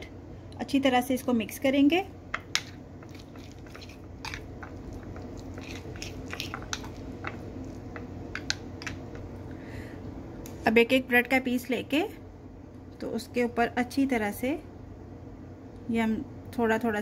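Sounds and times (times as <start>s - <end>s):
steady low hum: 0.0s - 17.0s
fork squishing butter: 2.6s - 9.2s
fork scraping a ceramic bowl: 5.4s - 7.0s.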